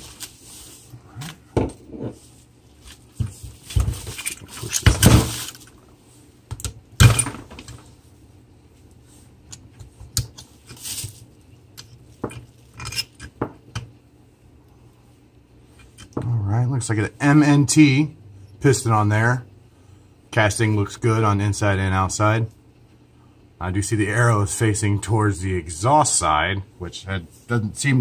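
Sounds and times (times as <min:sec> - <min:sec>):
scraping rustle: 0:00.0 - 0:01.4, 0:10.5 - 0:11.4
metal parts clicking and clinking: 0:11.8 - 0:13.4.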